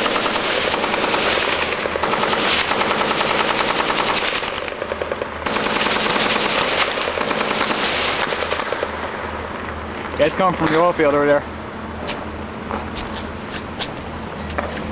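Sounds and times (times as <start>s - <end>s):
automatic gunfire bursts: 0.0s - 9.1s.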